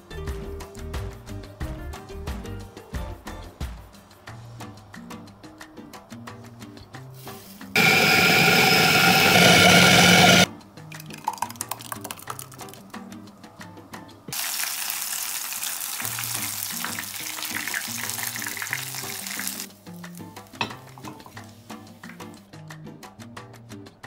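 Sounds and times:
electric food chopper whirring: 0:07.8 - 0:10.5
meat sizzling in frying pan: 0:14.3 - 0:21.4.

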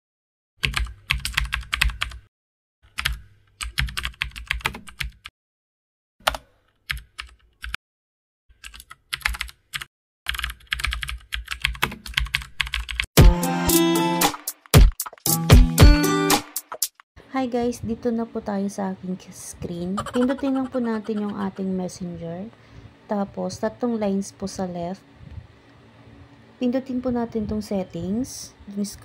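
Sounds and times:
music: 0:13.2 - 0:16.9.

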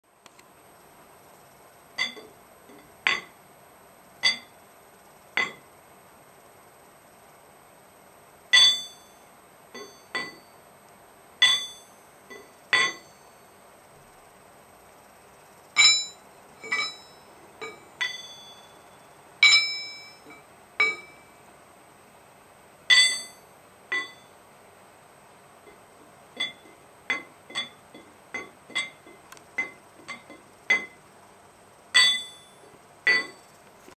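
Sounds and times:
metal camshaft ringing when struck: 0:02.0 - 0:02.3, 0:04.2 - 0:04.5, 0:05.4 - 0:05.6, 0:08.6 - 0:09.2, 0:09.8 - 0:10.4, 0:11.4 - 0:13.3, 0:15.8 - 0:18.8, 0:19.4 - 0:21.2, 0:22.9 - 0:24.3, 0:26.4 - 0:31.0, 0:32.0 - 0:33.4.

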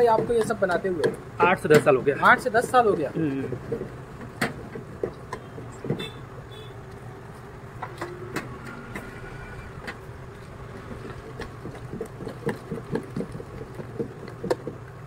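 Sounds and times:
hand beating batter in steel bowl: 0:10.7 - 0:15.0.

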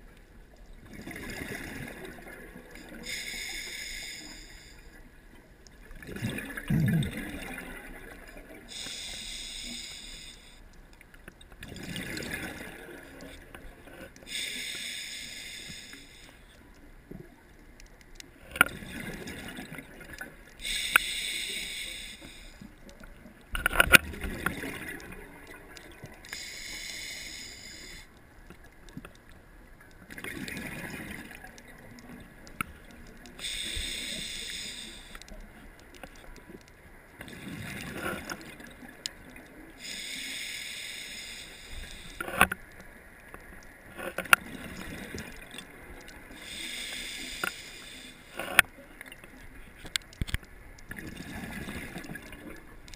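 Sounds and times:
exhaled bubbles gurgling: 0:00.8 - 0:03.6, 0:05.8 - 0:10.1, 0:11.6 - 0:13.8, 0:18.6 - 0:22.4, 0:23.0 - 0:28.0, 0:30.0 - 0:35.2, 0:50.9 - 0:52.9
regulator hiss on inhale: 0:02.9 - 0:05.0, 0:08.7 - 0:10.7, 0:14.2 - 0:16.6, 0:20.6 - 0:22.8, 0:26.2 - 0:28.2, 0:33.4 - 0:35.3, 0:39.8 - 0:42.5, 0:46.3 - 0:48.6.

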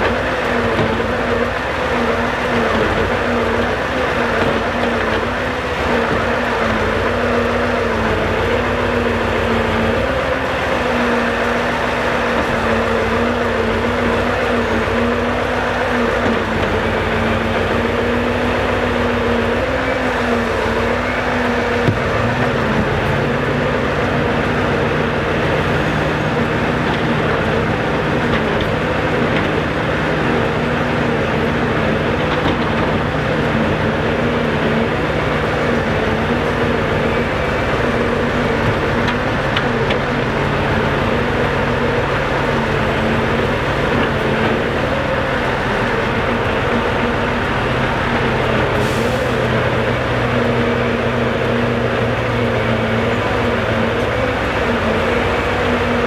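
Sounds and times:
deeper engine tone: 0:00.0 - 0:56.0
diesel engine running: 0:00.0 - 0:56.0
hydraulic whine: 0:00.0 - 0:56.0.

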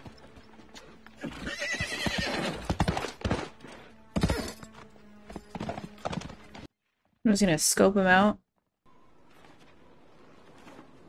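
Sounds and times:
hooves clopping: 0:00.0 - 0:06.7
horse whinnying: 0:01.2 - 0:02.9.

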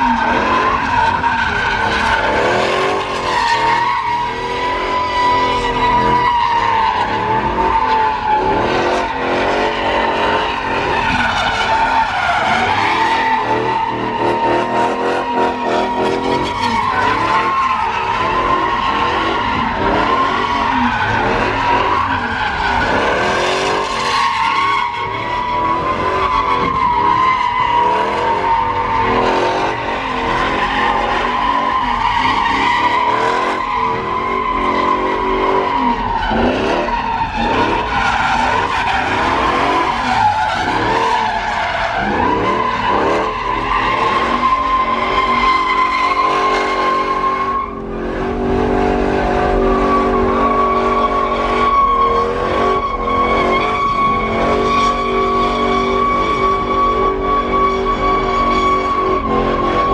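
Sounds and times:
engine revving: 0:00.0 - 0:07.7, 0:18.1 - 0:24.1, 0:27.8 - 0:41.2
tyres squealing on pavement: 0:00.0 - 0:59.9.

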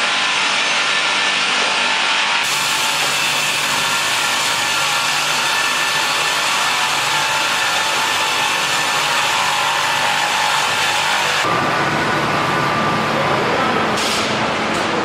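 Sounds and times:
saw cutting log: 0:00.0 - 0:11.5.

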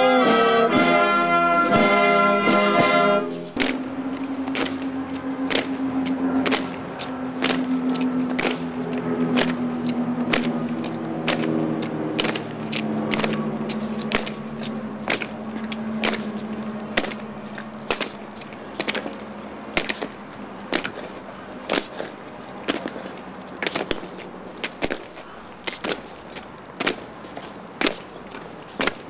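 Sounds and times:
held low chord: 0:00.0 - 0:20.5
footsteps on hard surface: 0:01.6 - 0:29.0.

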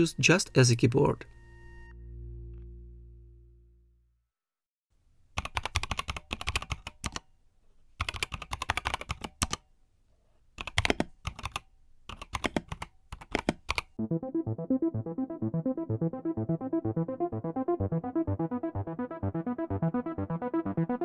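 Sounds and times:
music with keyboard-like notes: 0:00.0 - 0:04.0, 0:14.0 - 0:21.0
mechanical keyboard typing: 0:05.4 - 0:07.2, 0:08.0 - 0:09.6, 0:10.6 - 0:14.0.

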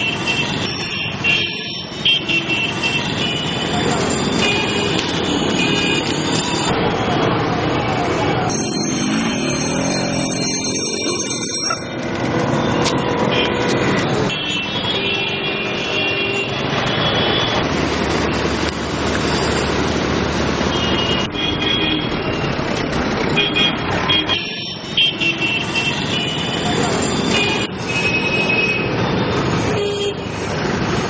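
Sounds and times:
vehicle horns beeping: 0:00.0 - 0:06.7, 0:12.6 - 0:17.6, 0:20.7 - 0:22.6, 0:23.3 - 0:30.4
motorbike and rickshaw engines: 0:00.0 - 0:31.0
street din: 0:00.0 - 0:31.0.

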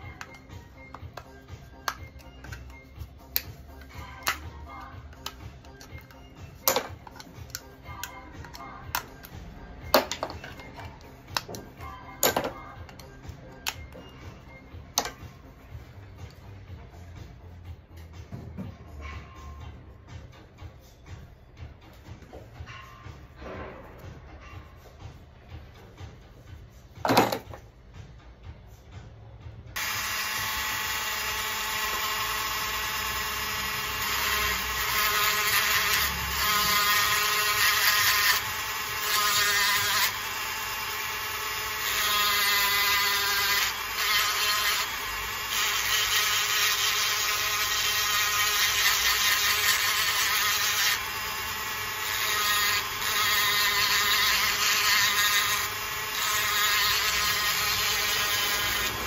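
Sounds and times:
rotary tool whining: 0:29.8 - 0:59.0.

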